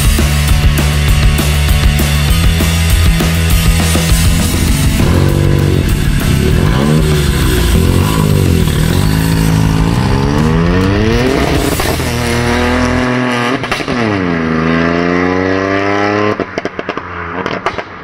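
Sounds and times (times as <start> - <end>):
car engine accelerating: 0.0 - 18.0
exhaust pops: 4.3 - 14.2, 16.3 - 18.0.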